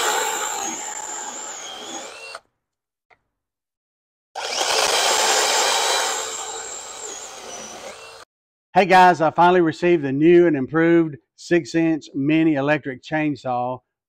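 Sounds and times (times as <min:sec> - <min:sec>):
electric chainsaw cutting log: 0:00.0 - 0:02.4, 0:04.4 - 0:08.3.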